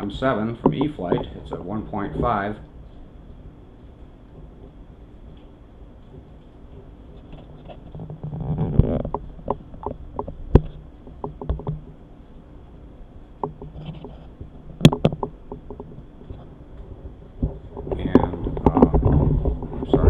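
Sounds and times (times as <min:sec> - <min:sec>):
faint low hum: 0:00.0 - 0:20.0
light knocks and clicks: 0:07.3 - 0:12.0.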